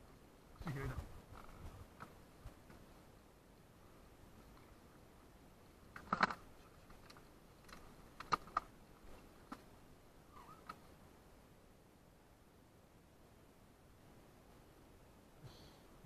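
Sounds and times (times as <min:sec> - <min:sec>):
fishing gear clicking and knocking: 0:06.0 - 0:08.7.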